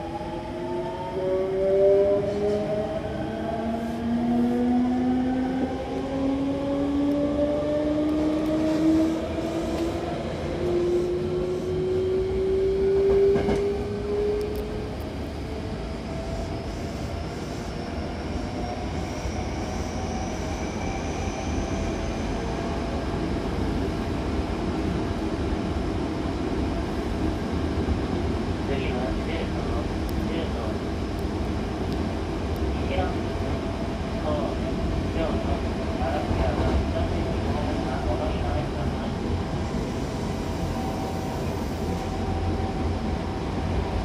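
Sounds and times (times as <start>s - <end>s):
train running noise: 5.6s - 23.3s.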